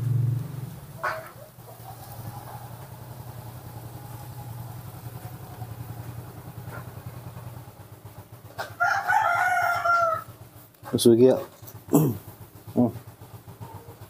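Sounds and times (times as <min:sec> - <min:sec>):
loud held animal call: 0:08.8 - 0:10.4.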